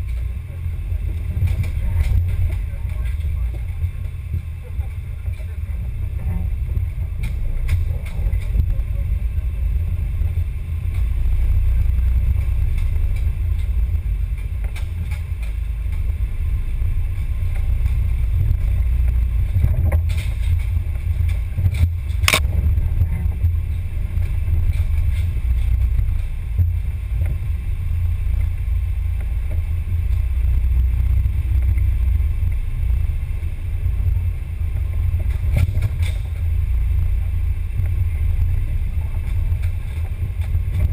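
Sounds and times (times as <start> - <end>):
rc car low rumble: 0.0 - 40.9
sharp crack: 21.3 - 22.6.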